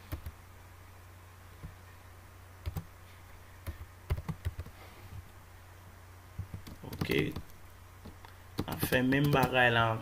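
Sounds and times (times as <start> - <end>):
low steady hum: 0.0 - 10.0
keyboard keystrokes: 6.4 - 9.6.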